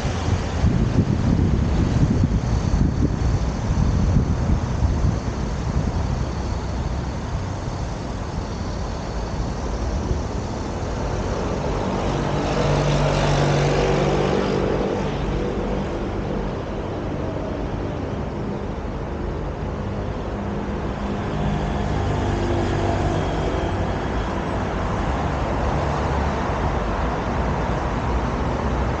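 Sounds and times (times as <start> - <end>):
rumble of passing cars: 0.0 - 29.0.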